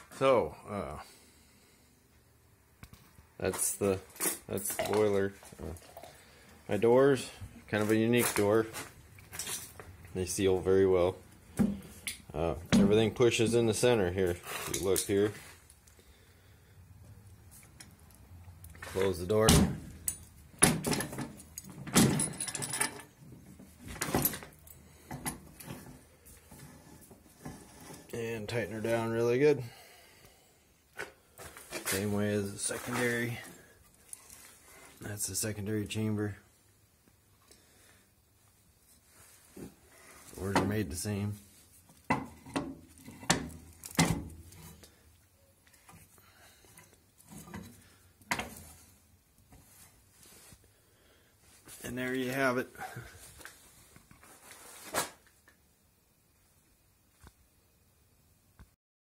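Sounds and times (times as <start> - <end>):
metal door clanking shut: 19.4 - 19.9, 20.6 - 23.0
metal clanks and knocks: 19.5 - 23.2, 42.1 - 44.4.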